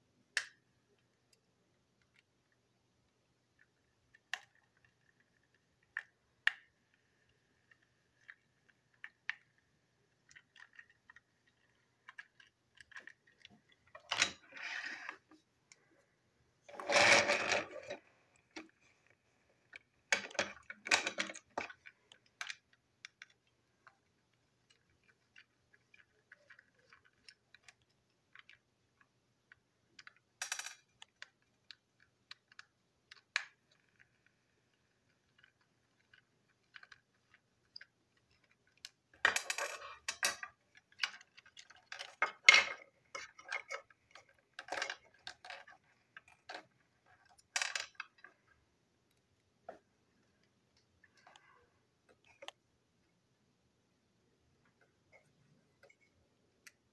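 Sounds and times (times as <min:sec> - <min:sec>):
plastic toy parts clicking: 0:03.6 - 0:15.2, 0:16.7 - 0:48.4.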